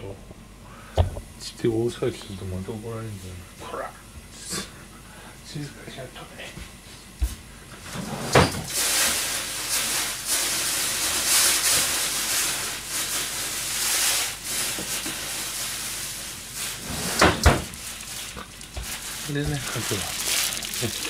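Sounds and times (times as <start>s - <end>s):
loud steady hiss: 8.7s - 21.0s.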